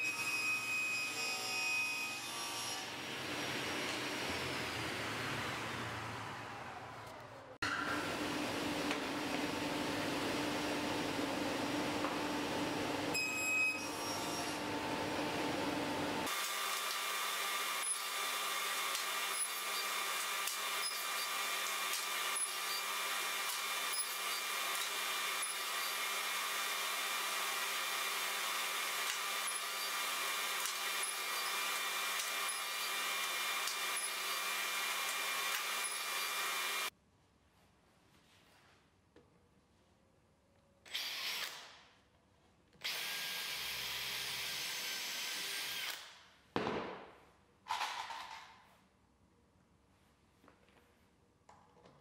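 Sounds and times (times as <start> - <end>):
table saw humming: 0.0 - 6.7, 7.6 - 36.9.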